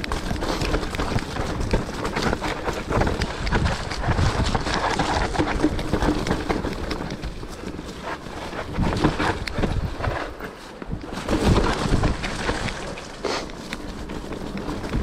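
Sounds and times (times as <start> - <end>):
bike rattling and knocking: 0.0 - 15.0
bike tyres on mud: 0.0 - 15.0
wind buffeting microphone: 0.0 - 15.0.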